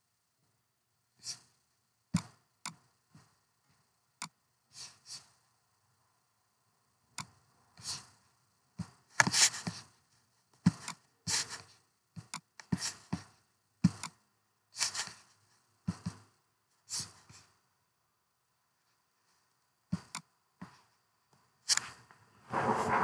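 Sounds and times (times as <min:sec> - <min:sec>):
brief hissy rustle: 0:22.5 - 0:23.0.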